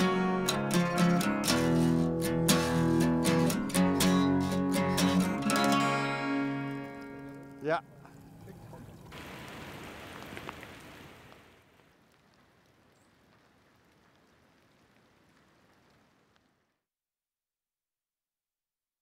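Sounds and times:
rain falling: 0:06.7 - 0:16.8.

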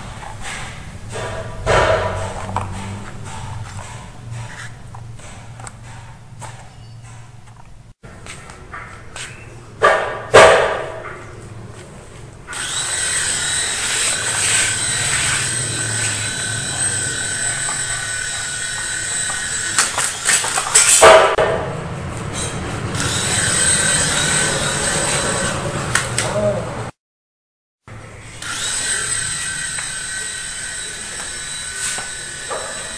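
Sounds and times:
sharp knocks: 0:00.5 - 0:04.5, 0:09.8 - 0:11.2
toy helicopter motors whining: 0:12.5 - 0:21.0, 0:23.0 - 0:25.8, 0:28.2 - 0:32.9.

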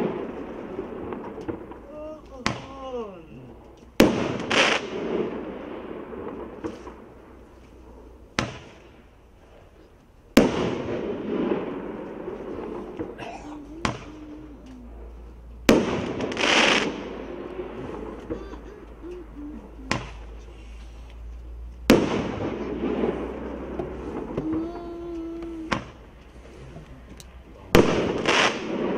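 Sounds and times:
roman candle bangs: 0:01.0 - 0:03.0.

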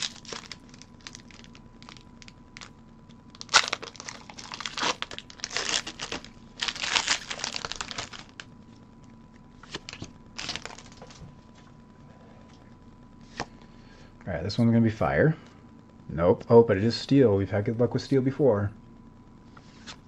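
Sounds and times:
foil wrapper tearing and crinkling: 0:00.0 - 0:02.7, 0:03.3 - 0:08.5, 0:09.6 - 0:11.2.

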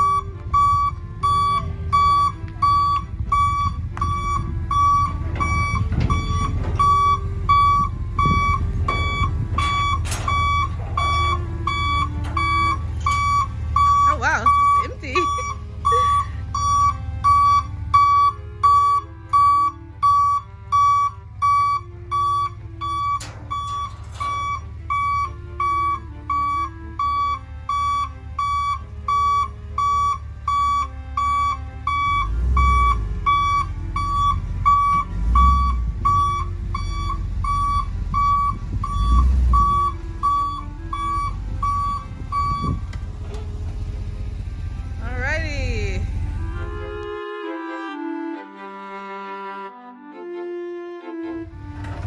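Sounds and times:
reversing alarm beeping: 0:00.0 - 0:43.9
truck engine rumble: 0:00.0 - 0:52.0.

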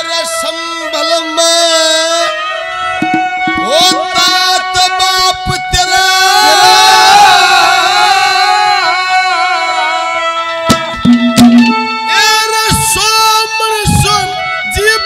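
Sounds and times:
sustained accompaniment notes: 0:00.0 - 0:15.0
drum hits: 0:03.0 - 0:04.4, 0:10.7 - 0:13.1, 0:13.8 - 0:14.4.

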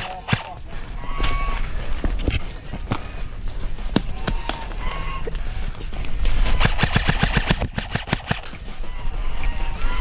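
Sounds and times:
airsoft rifle full-auto burst: 0:06.6 - 0:08.5.

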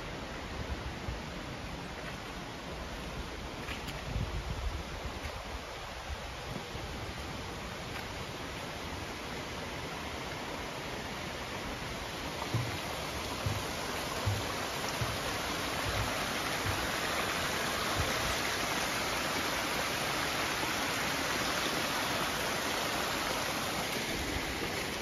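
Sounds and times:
creek trickling over rocks: 0:00.0 - 0:25.0
footsteps on wooden footbridge: 0:11.5 - 0:18.8.

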